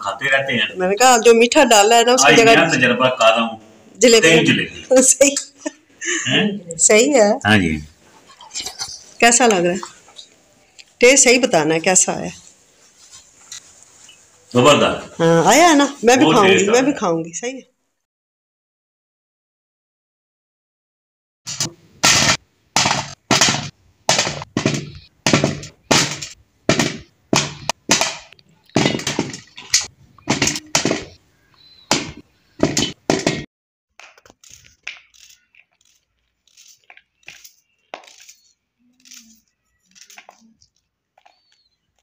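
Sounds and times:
knife peeling an onion: 34.1s - 41.7s.

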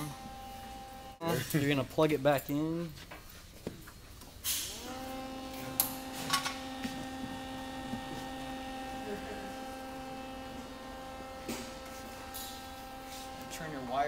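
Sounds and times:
welder motor humming: 0.0s - 1.2s, 4.6s - 14.0s.

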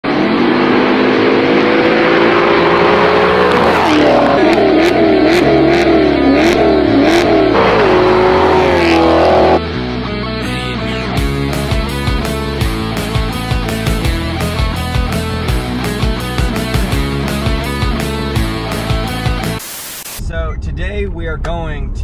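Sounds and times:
car exhaust revving: 0.0s - 9.7s
rock music: 0.0s - 19.7s.

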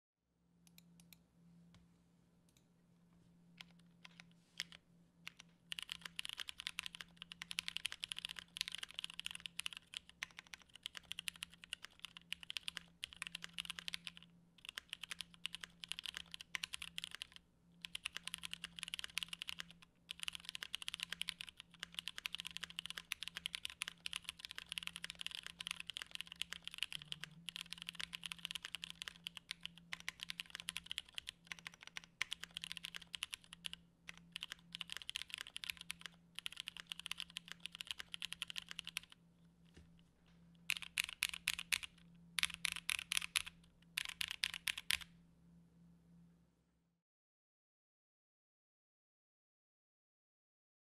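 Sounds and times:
mechanical keyboard typing: 3.6s - 39.2s, 40.7s - 45.1s.

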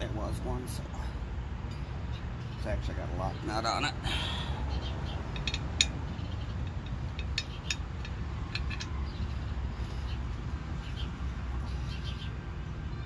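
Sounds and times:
metallic clicks of pulley: 6.6s - 9.5s.

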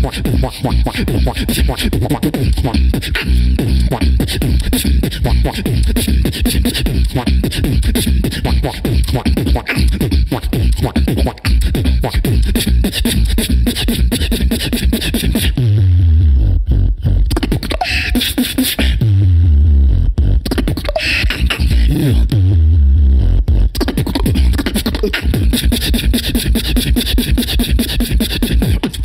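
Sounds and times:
person beatboxing: 0.0s - 29.0s
low bass tone sliding down: 15.5s - 17.4s, 19.0s - 20.5s, 21.4s - 23.8s.

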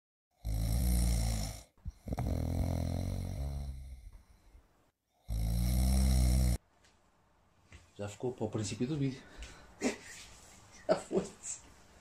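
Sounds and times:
man snoring: 0.4s - 4.2s, 5.2s - 6.6s.

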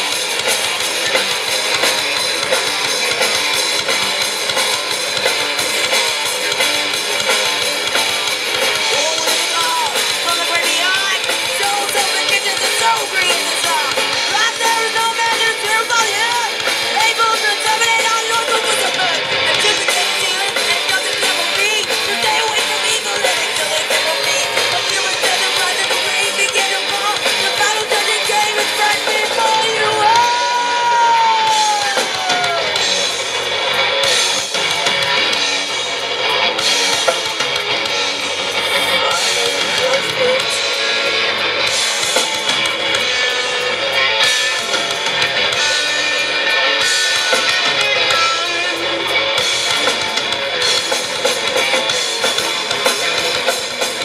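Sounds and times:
bass guitar: 0.0s - 54.0s
drums: 0.0s - 54.0s
electric guitars: 0.0s - 54.0s
live rock band playing: 0.0s - 54.0s
woman singing: 9.0s - 31.4s.

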